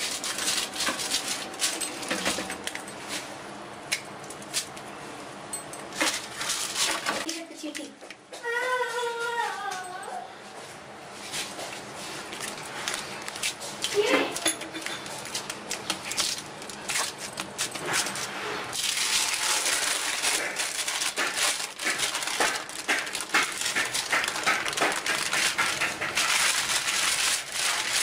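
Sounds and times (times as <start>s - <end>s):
paper crinkling and rustling: 0.0s - 2.5s, 6.0s - 7.3s, 12.1s - 14.1s, 15.0s - 28.0s.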